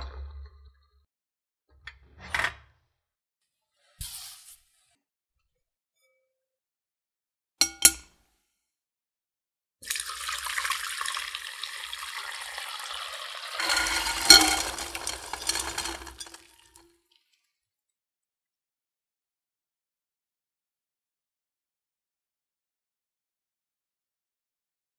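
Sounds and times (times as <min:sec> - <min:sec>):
glass bowl clinking: 0:07.6 - 0:08.1, 0:09.9 - 0:16.8
water poured through strainer: 0:09.8 - 0:16.8.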